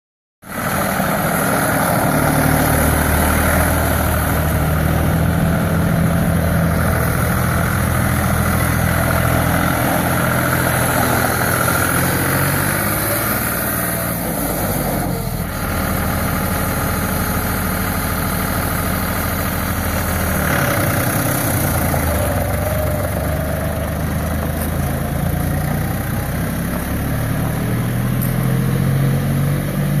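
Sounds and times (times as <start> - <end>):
tractor diesel engine running: 0.4 - 30.0.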